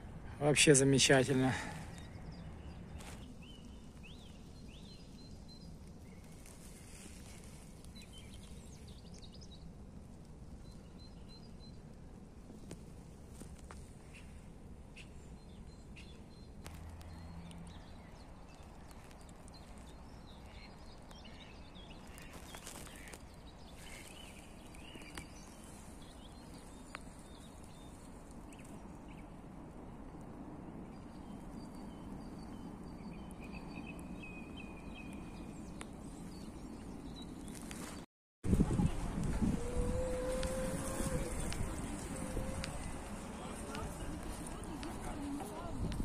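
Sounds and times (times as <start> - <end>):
songbirds chirping and calling: 0.2 - 9.8, 13.4 - 29.4, 38.6 - 46.0.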